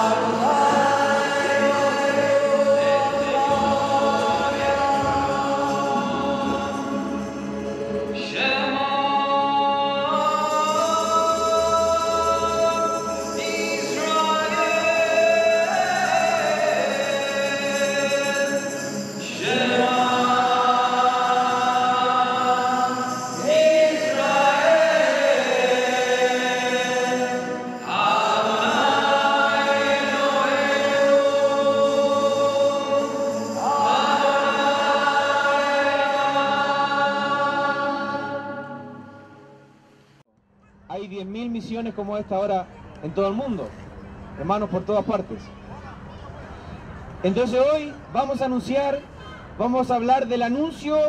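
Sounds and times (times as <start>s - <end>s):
voices singing a hymn: 0.0s - 39.8s.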